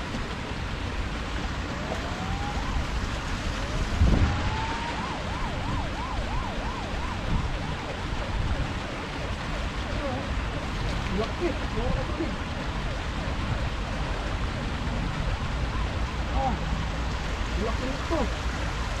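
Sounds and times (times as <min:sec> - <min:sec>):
wind and water noise: 0:00.0 - 0:19.0
emergency vehicle siren: 0:01.4 - 0:19.0.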